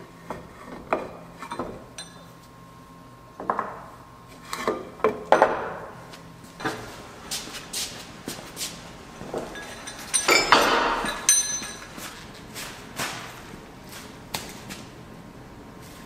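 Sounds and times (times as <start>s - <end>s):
metal knocks and clinks: 1.5s - 2.3s, 9.2s - 12.3s
clattering metal jangle: 9.4s - 12.1s.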